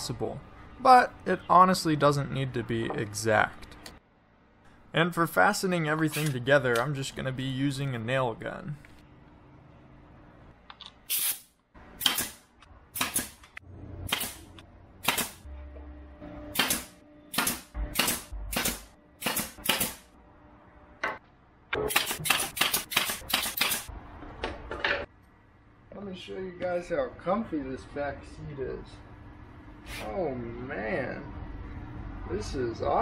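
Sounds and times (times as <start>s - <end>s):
pneumatic nailer firing nails: 11.1s - 13.5s, 14.1s - 15.4s, 16.5s - 20.1s, 21.9s - 23.9s.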